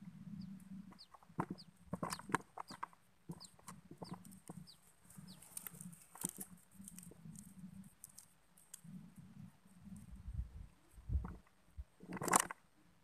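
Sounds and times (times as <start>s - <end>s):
bird chirps: 0.3s - 5.6s
dry grass and twigs rustling: 0.4s - 12.7s.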